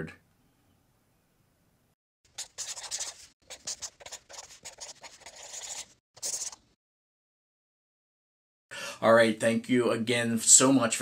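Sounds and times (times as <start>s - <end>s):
pen scratching on surface: 2.3s - 6.6s.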